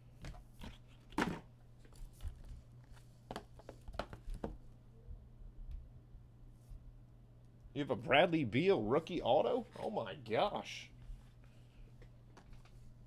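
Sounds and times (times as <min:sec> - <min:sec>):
steady low hum: 0:04.5 - 0:13.0.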